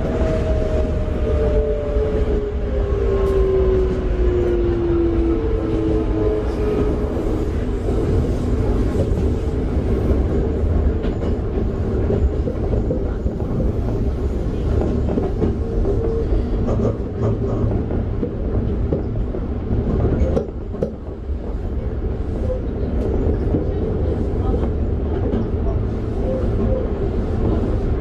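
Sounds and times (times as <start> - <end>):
train wheels rumbling on rail: 0.0 - 28.0
rail-joint clicks: 10.8 - 21.6.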